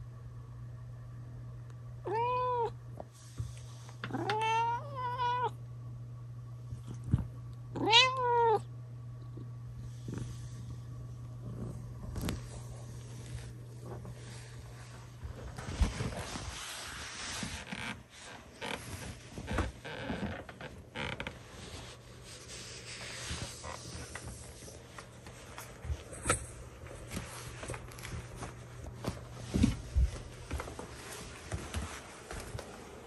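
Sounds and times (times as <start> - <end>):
low hum: 0.0 - 33.0
creaks on wooden floor: 18.6 - 21.4.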